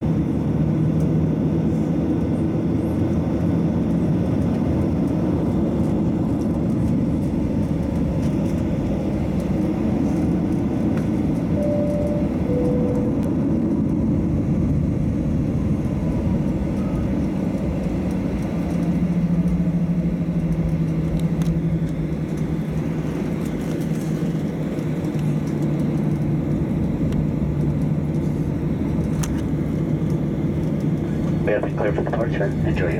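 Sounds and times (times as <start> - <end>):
jet engines rumbling at low power: 0.0 - 32.9
two-tone cabin chime: 11.6 - 13.3.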